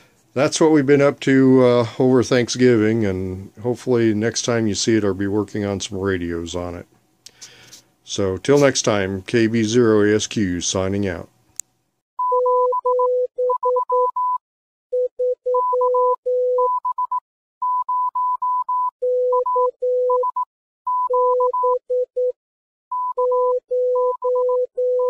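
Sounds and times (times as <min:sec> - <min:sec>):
morse code beeps: 0:12.2 - 0:25.0.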